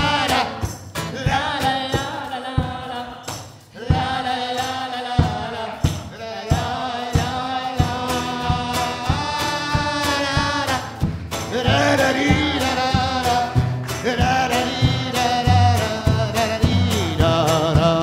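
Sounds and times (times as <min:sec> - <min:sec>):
group singing la la la: 0:00.0 - 0:18.0
steady drum beat: 0:00.0 - 0:18.0
band playing: 0:07.9 - 0:18.0.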